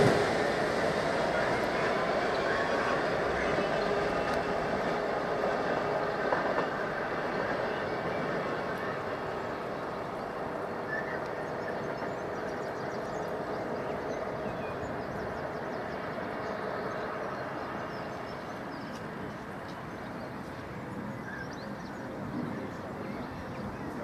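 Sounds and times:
diesel locomotive engine drone: 0.0s - 24.0s.

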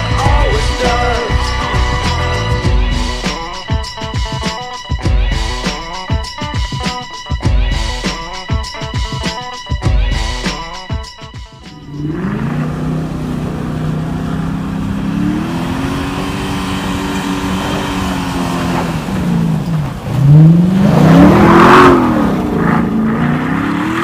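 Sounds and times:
car engine revving hard: 11.9s - 24.0s
tyres churning through snow: 11.9s - 24.0s.

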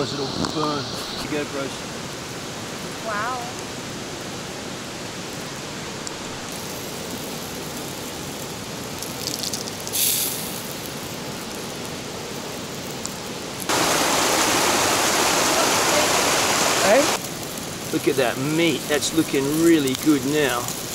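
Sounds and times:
brief hiss: 0.0s - 1.8s, 9.8s - 10.8s
river rushing: 0.0s - 20.9s.

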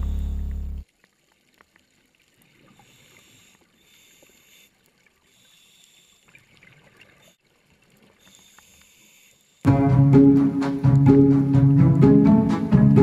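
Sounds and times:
low underwater hiss: 0.0s - 12.9s
small clicks: 2.6s - 9.7s.

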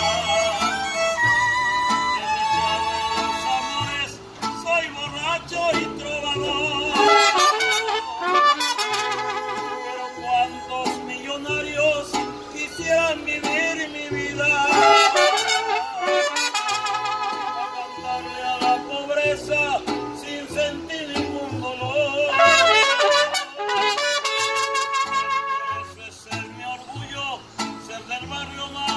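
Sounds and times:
plucked bass guitar notes: 0.0s - 28.9s
strummed vihuela: 0.0s - 28.9s
trumpet melody with vibrato: 6.8s - 10.6s, 14.6s - 18.6s, 22.2s - 26.1s.

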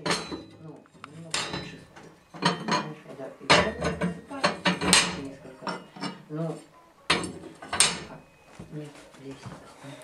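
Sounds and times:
metal clanks and scrapes at stove: 0.0s - 6.3s, 7.1s - 8.2s.

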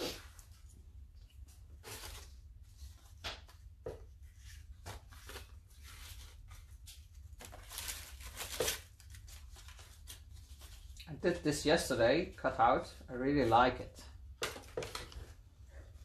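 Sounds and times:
paper rustling and scraping: 0.0s - 3.2s, 4.2s - 11.0s.

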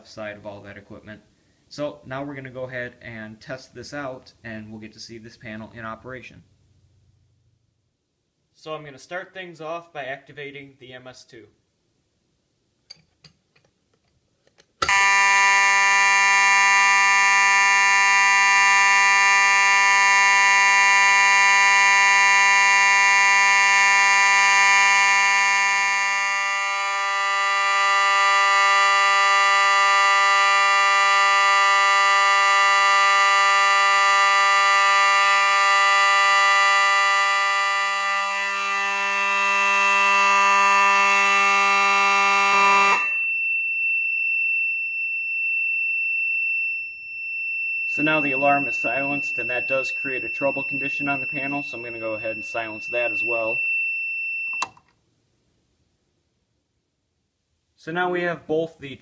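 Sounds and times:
fire alarm horn blaring: 14.8s - 54.7s
high electronic trouble tone: 14.8s - 54.8s.

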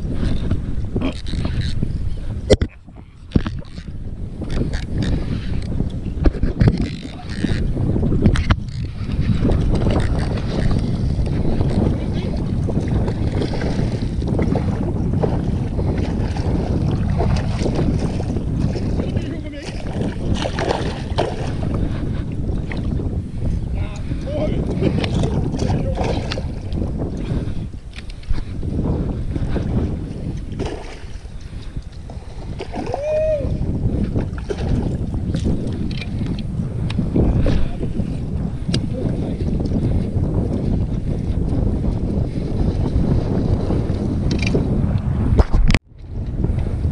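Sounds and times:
water slapping kayak hull: 0.0s - 46.9s
wind buffeting microphone: 0.0s - 46.9s
fishing rod and reel knocks: 3.3s - 11.9s.

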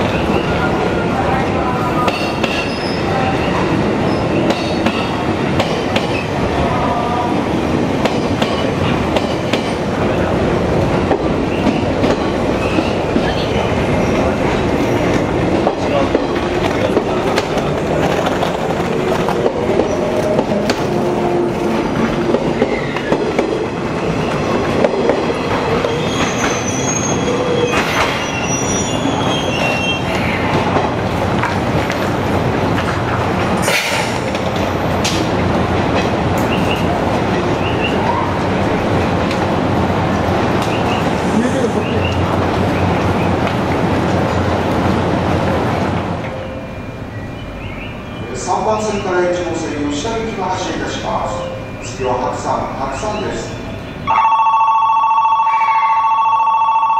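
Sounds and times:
high-pitched wheel squeals: 25.8s - 30.2s.

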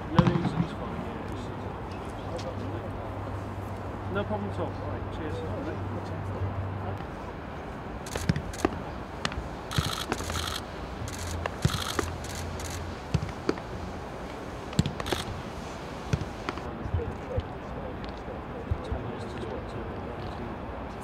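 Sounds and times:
low background hum: 0.0s - 21.0s
camera shutter clicks: 8.1s - 8.8s, 9.7s - 13.4s, 14.8s - 15.4s.

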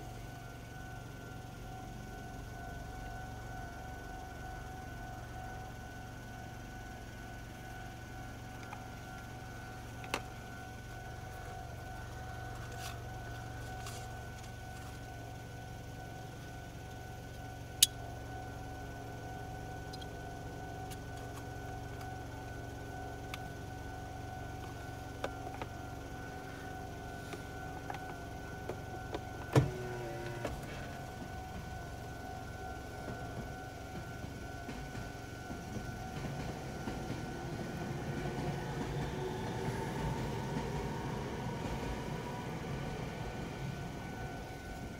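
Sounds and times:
car engine idling hum: 0.0s - 44.9s
level crossing warning bell: 0.0s - 44.9s.

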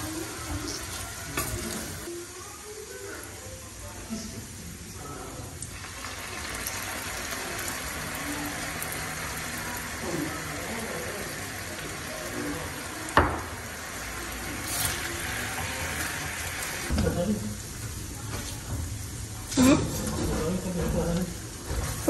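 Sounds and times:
sauce hissing in a pan: 0.0s - 22.0s.

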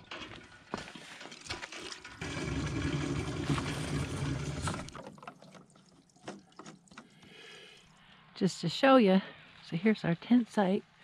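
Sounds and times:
water rushing from spout: 1.1s - 8.0s.

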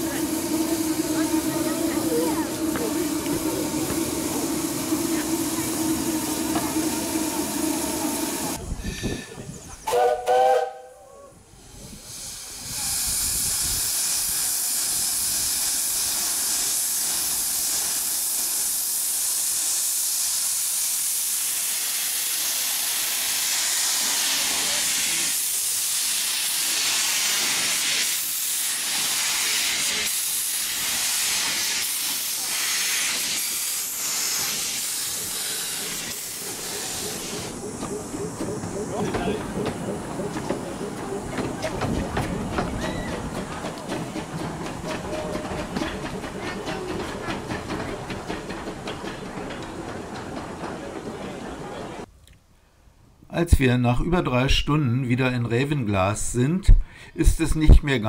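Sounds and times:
steam hissing: 0.0s - 10.8s, 11.5s - 52.1s
steam locomotive whistle: 9.9s - 11.2s.

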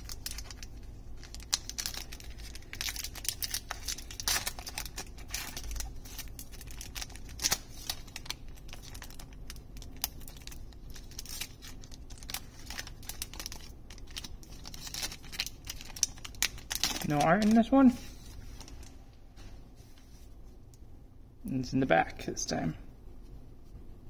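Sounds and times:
foil wrapper tearing and crinkling: 0.0s - 17.8s.

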